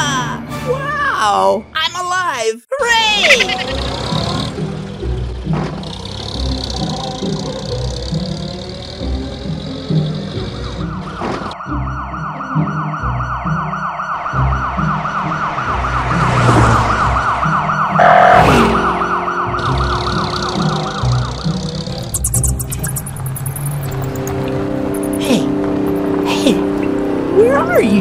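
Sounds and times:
police siren yelping: 6.0s - 26.2s.

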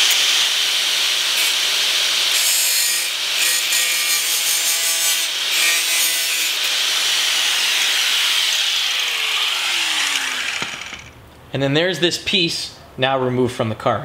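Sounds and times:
angle grinder cutting metal: 0.0s - 11.2s
grinder motor winding down: 6.5s - 11.2s.

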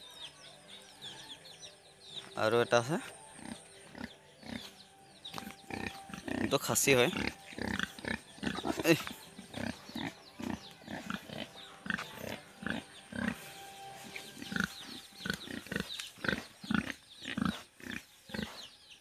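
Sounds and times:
pig grunting: 3.0s - 4.8s, 5.4s - 13.5s, 14.3s - 18.7s.

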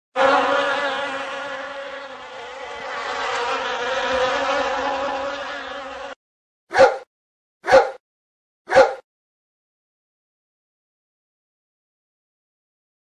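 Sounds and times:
buzzing drone: 0.1s - 6.2s.

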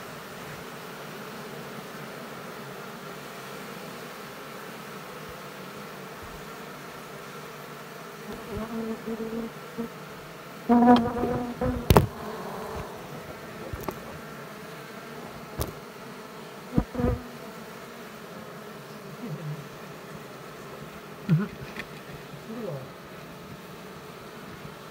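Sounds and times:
bees buzzing: 0.0s - 24.9s
sharp knocks: 10.9s - 12.2s.

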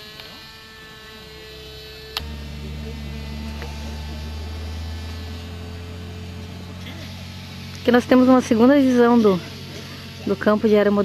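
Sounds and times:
model airplane engine whine: 0.0s - 11.0s
deep steady hum: 1.8s - 10.3s.

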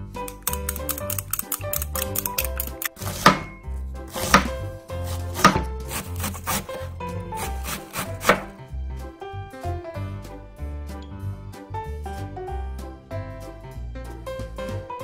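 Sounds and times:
light background music: 0.0s - 15.0s
knife slicing cabbage on wooden board: 2.0s - 8.6s.

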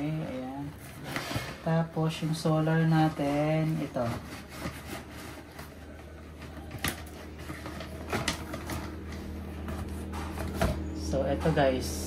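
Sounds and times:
cardboard box rustling and scraping: 0.6s - 11.7s.

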